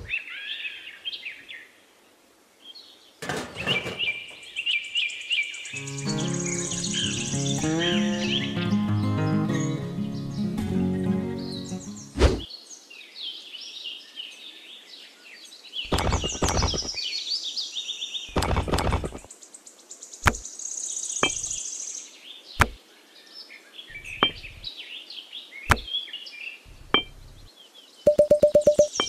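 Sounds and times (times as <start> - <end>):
birds chirping and singing: 3.2 - 12.7, 15.5 - 19.4, 20.2 - 22.8, 23.6 - 27.8
sharp clicks and knocks: 15.9 - 17.0, 18.3 - 19.3, 20.2 - 20.4, 21.2 - 21.6, 24.0 - 24.7, 25.7 - 25.9, 26.7 - 27.5, 28.1 - 29.0
buzzing bird trill: 28.1 - 29.0.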